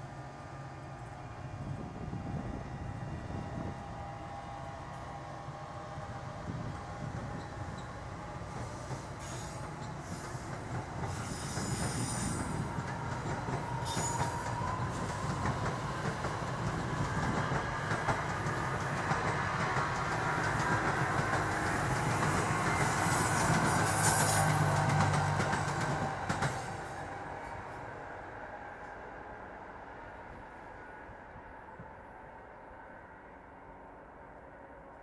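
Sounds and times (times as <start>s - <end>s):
train wheels rumbling on rails: 0.0s - 32.0s
high-pitched wheel squeal: 22.8s - 24.6s.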